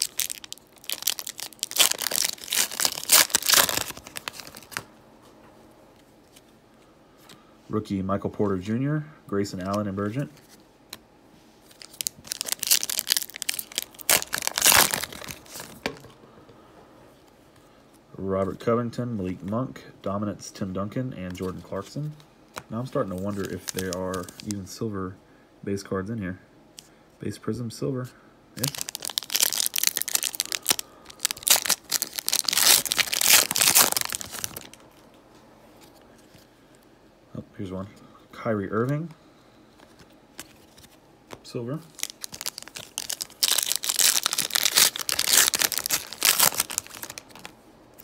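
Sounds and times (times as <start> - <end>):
plastic wrapper tearing and crinkling: 0.0 - 4.9, 11.7 - 16.1, 23.1 - 24.6, 28.6 - 35.1, 41.9 - 47.5.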